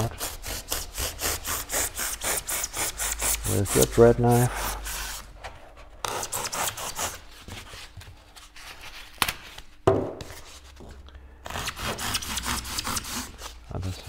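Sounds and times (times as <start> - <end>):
bread knife sawing through foam: 0.0 - 5.3.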